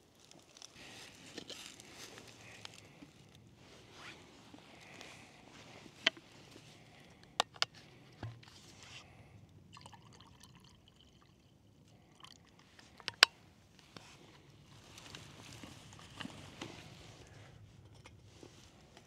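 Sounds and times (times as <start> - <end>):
camp gear clicks and knocks: 0.2 - 3.4, 4.0 - 8.7, 12.8 - 17.1
liquid trickling: 9.7 - 12.6.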